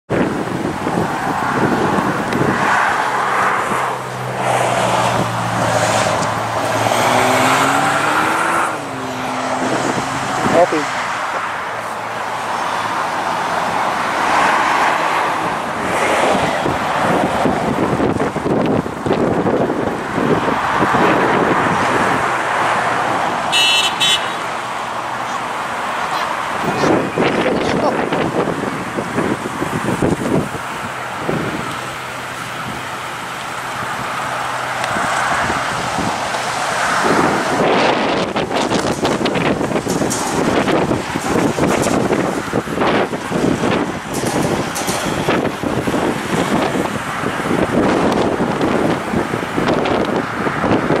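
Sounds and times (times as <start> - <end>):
tyre and road noise: 0.0 - 51.0
vehicle engine drone: 0.1 - 51.0
engine accelerating: 3.0 - 10.8.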